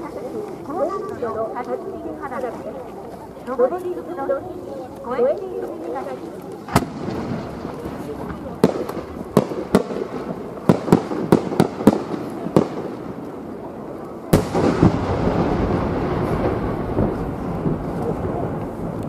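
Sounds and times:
firework pops: 6.6 - 19.0
firework shell booming: 6.7 - 13.6, 14.3 - 19.0.

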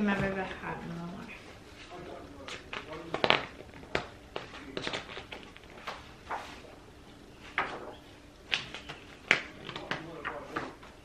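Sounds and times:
paper pages turning: 2.4 - 6.7.

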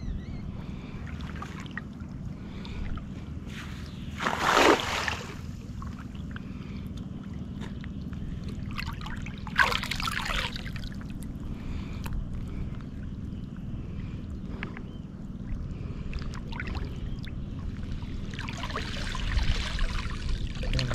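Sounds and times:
steady low rush: 0.0 - 20.6
water splashing: 4.1 - 6.0, 8.4 - 11.2.

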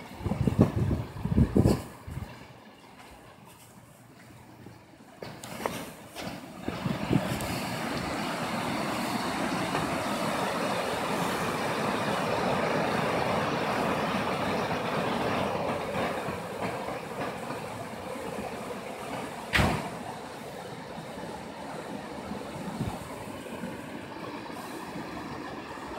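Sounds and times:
floodwater rushing: 5.5 - 25.9
brief thump: 19.5 - 20.0.

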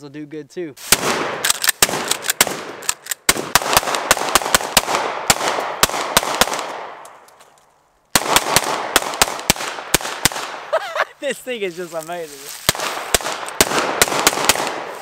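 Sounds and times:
pistol shots with echo: 0.9 - 7.1, 8.1 - 10.7, 12.7 - 15.0.

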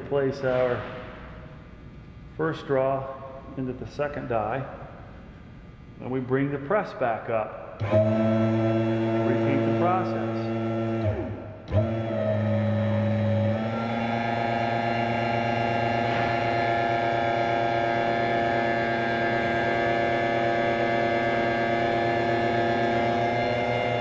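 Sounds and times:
hydraulic pump humming: 7.7 - 24.0.

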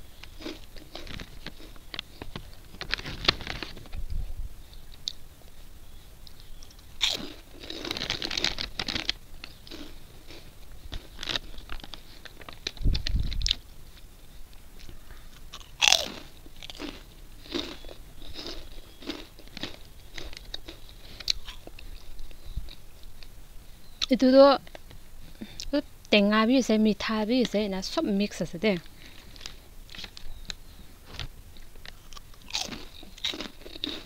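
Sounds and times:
crunching snack chips: 0.2 - 4.0, 6.3 - 13.6, 15.4 - 22.8, 31.1 - 34.0.

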